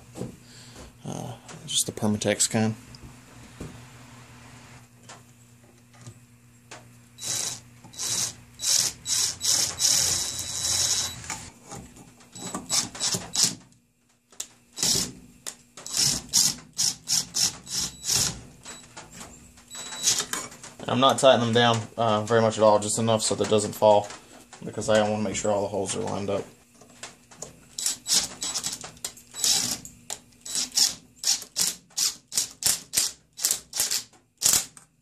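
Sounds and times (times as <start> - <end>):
impact driver bursts: 7.2 - 11.5, 12.4 - 13.6, 14.8 - 15.2, 15.8 - 18.4, 27.8 - 29.8, 30.4 - 34.8.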